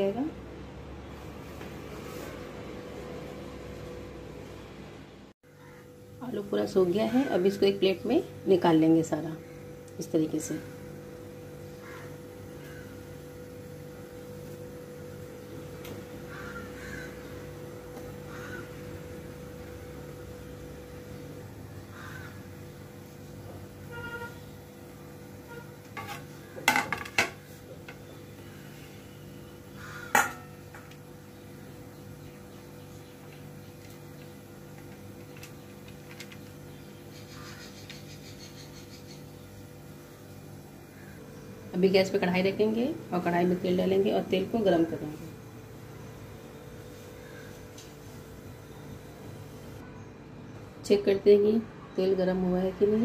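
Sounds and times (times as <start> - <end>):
steady background hum: 0.0 - 53.0
bird calling: 11.8 - 13.0, 16.3 - 17.5, 18.2 - 18.8, 21.8 - 22.4, 29.5 - 30.2, 36.6 - 39.5.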